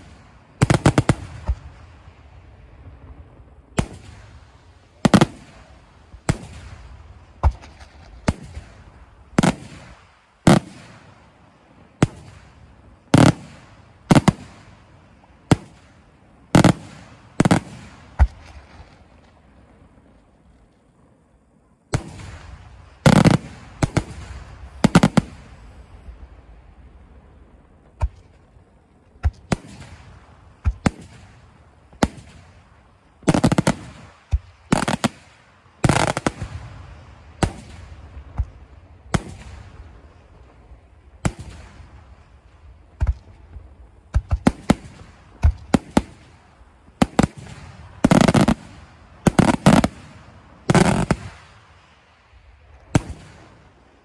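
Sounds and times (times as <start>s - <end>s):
firework shells bursting: 33.2s - 36.6s.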